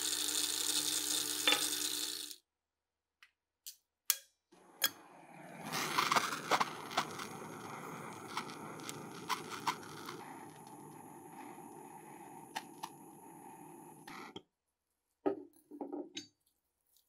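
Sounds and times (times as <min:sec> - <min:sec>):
torch flame hissing: 0:04.6 - 0:14.4
torch igniter clicks: 0:05.7 - 0:14.4.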